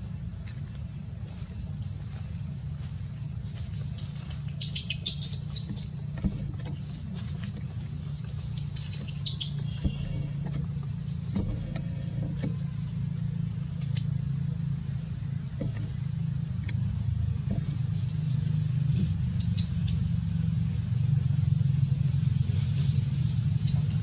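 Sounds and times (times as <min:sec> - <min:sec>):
engine humming: 0:00.0 - 0:24.0
high squeaks and clicks: 0:04.3 - 0:06.8, 0:08.4 - 0:12.6.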